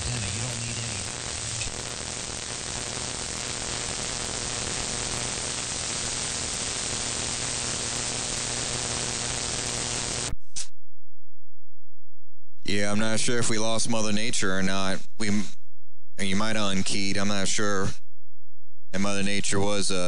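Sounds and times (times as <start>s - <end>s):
radio static hiss: 0.0s - 10.3s, 19.0s - 20.0s
short radio burst: 0.0s - 10.3s
faint hum: 0.0s - 10.8s, 12.6s - 20.0s.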